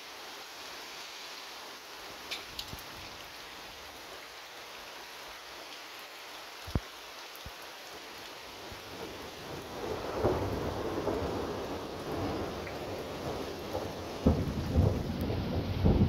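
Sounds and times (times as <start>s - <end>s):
steady rain: 0.0s - 16.0s
thunder rumbling: 8.8s - 16.0s.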